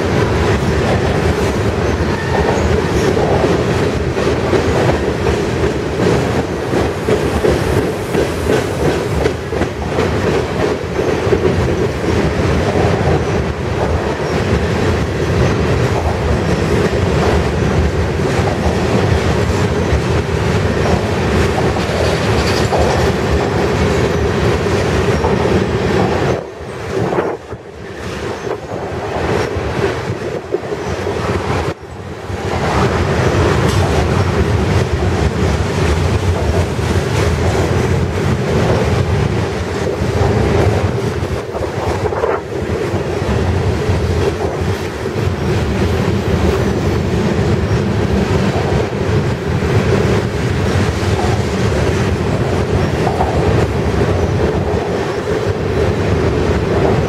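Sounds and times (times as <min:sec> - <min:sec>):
train wheels rumbling on rail: 0:00.0 - 0:57.0
clattering over rail joints: 0:00.1 - 0:28.7.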